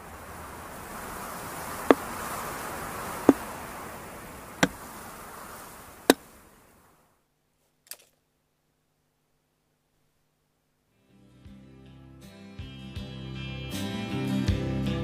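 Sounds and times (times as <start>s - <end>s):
film hiss: 0.0s - 11.1s.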